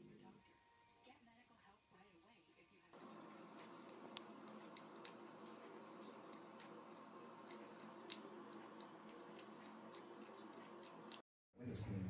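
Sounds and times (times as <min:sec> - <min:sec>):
cat lapping water: 0:03.0 - 0:11.2.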